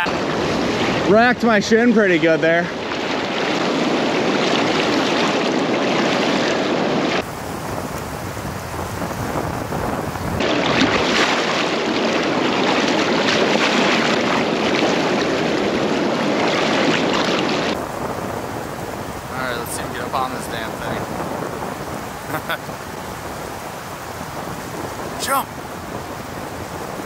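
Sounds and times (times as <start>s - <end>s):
river rapids rushing: 0.0s - 1.1s, 17.8s - 27.0s.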